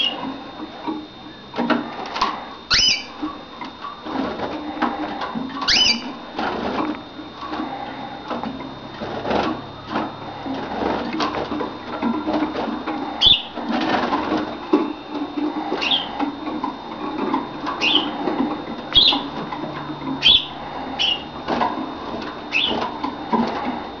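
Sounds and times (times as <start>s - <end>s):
finch calling: 2.7s - 3.2s, 5.6s - 6.2s, 13.2s - 13.6s, 15.8s - 16.2s, 17.8s - 18.2s, 18.9s - 19.4s, 20.2s - 21.3s, 22.5s - 22.8s.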